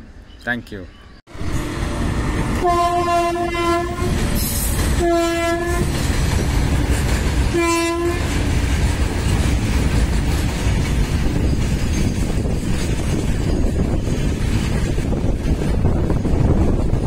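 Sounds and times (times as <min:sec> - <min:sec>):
train horn blast: 0:01.3 - 0:06.0, 0:07.4 - 0:08.6
freight train wheels rumbling on rail: 0:01.3 - 0:17.0.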